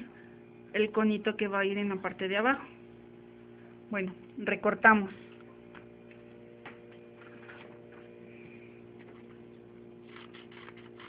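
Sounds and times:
faint electrical hum: 0.0 - 11.0
scissors snipping paper: 10.1 - 11.0.

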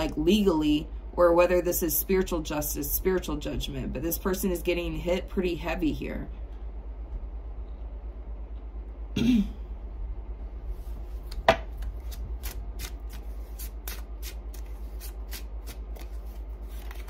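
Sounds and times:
cards being shuffled: 11.1 - 17.0.

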